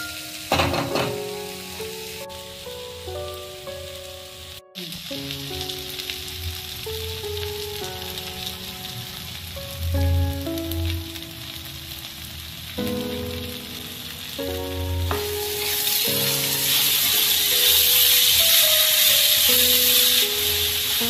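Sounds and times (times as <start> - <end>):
background music of slow held notes: 0.0 - 21.0
food sizzling in hot oil: 0.0 - 21.0.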